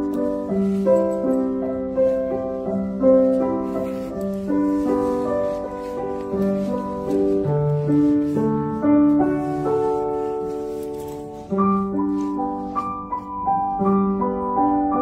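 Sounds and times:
solo grand piano melody: 0.0s - 15.0s.

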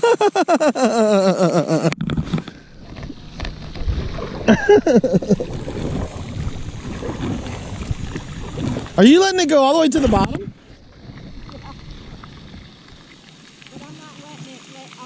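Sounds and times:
rush of wind and water: 1.8s - 15.0s.

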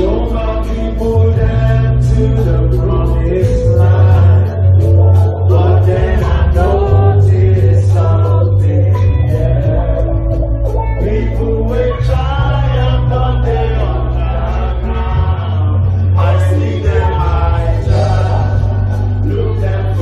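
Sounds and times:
heavy bass line: 0.0s - 20.0s
live concert music over pa: 0.0s - 20.0s
people singing: 0.0s - 20.0s
steady beat: 12.2s - 20.0s.

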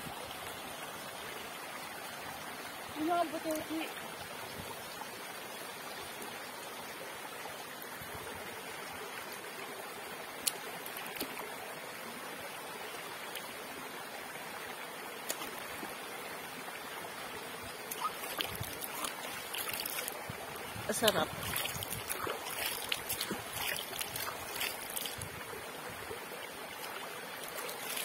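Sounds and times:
stream running over rocks: 0.0s - 28.0s.

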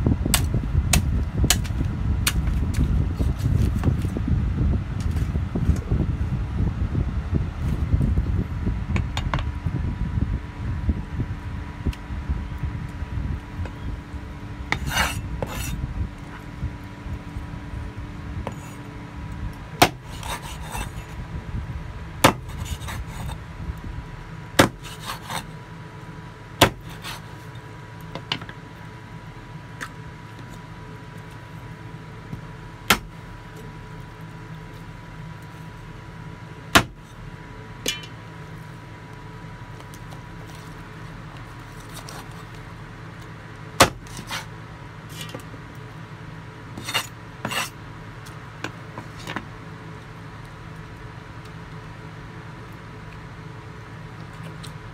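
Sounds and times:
meat and blade scraping: 14.7s - 15.8s, 19.8s - 21.2s, 22.3s - 23.4s, 24.6s - 25.5s, 26.6s - 27.4s, 41.8s - 42.5s, 43.8s - 44.5s, 46.8s - 47.8s
cleaver chopping on wooden board: 19.8s - 20.6s, 22.2s - 23.0s, 24.6s - 25.4s, 26.6s - 27.2s, 32.9s - 33.1s, 36.8s - 37.0s, 43.8s - 44.4s.

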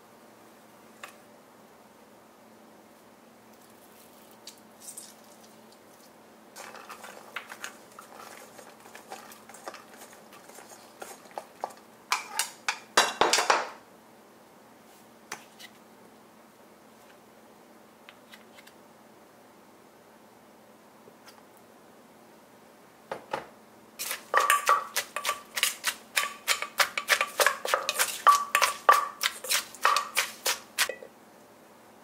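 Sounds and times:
spoon scraping against a bowl: 6.6s - 12.6s, 24.0s - 31.0s.

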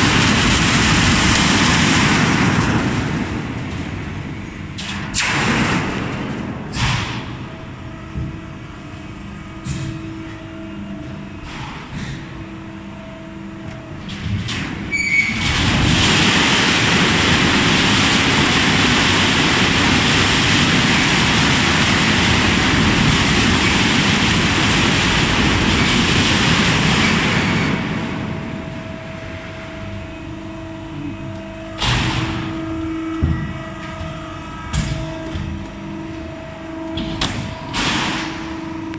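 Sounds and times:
factory machinery humming: 0.0s - 38.9s
loud rushing noise: 15.4s - 30.9s.

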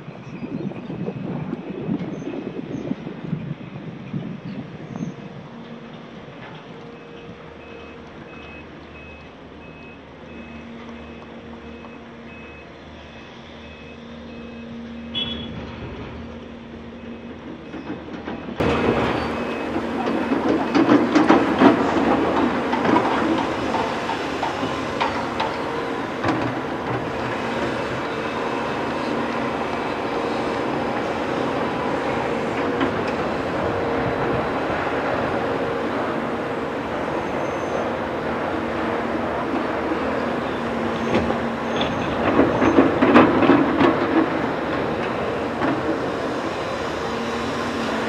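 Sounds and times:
excavator diesel engine running: 0.8s - 48.0s
reversing alarm beeping: 7.0s - 15.7s, 16.9s - 22.6s.

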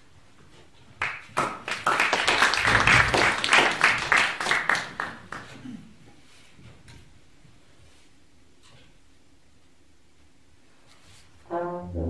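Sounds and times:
audience applauding: 1.0s - 5.6s.

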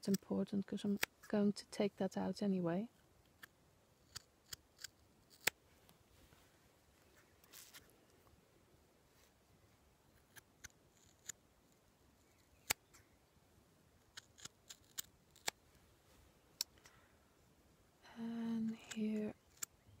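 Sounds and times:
scissors snipping knit fabric: 3.4s - 5.6s.

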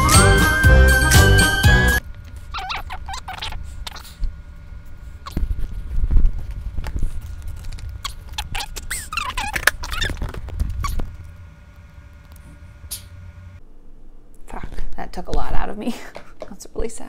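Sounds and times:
squeaks: 2.5s - 4.2s, 8.0s - 11.2s.

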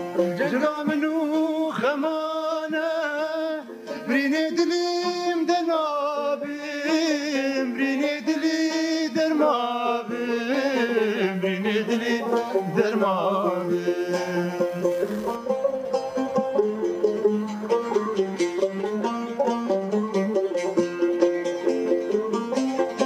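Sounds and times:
plucked lutes: 0.0s - 23.0s
man singing long held notes: 0.2s - 15.5s.

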